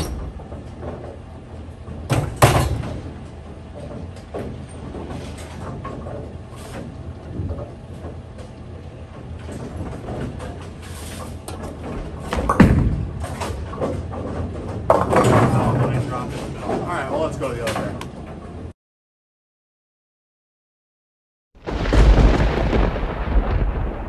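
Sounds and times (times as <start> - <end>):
knocks and clatters: 0.0 - 16.9.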